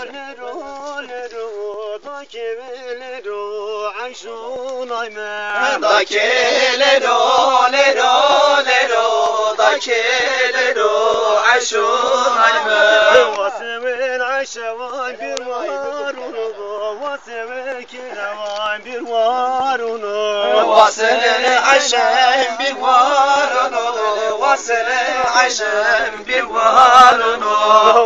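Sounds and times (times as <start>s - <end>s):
man singing folk song: 0.0s - 28.0s.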